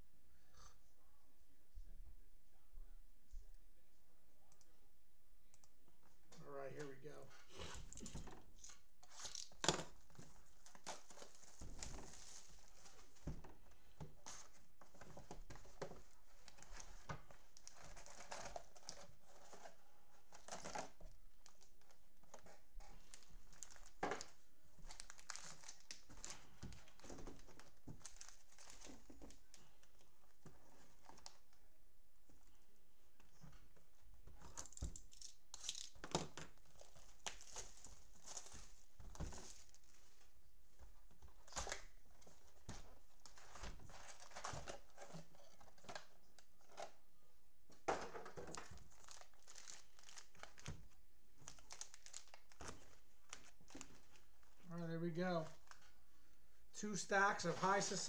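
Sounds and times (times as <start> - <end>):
plastic wrapper crinkling and tearing: 8.6 - 13.1, 16.1 - 30.0, 34.5 - 40.0, 48.5 - 54.4.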